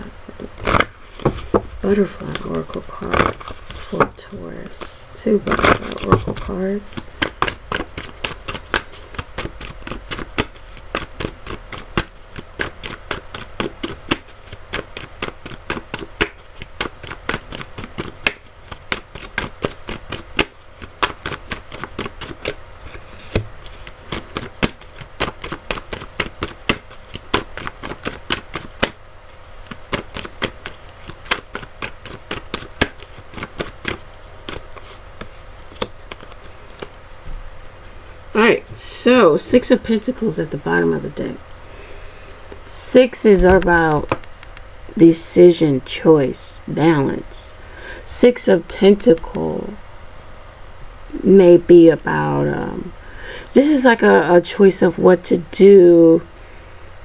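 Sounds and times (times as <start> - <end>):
cards being shuffled: 0.3 - 29.0, 29.6 - 37.0, 43.2 - 44.7.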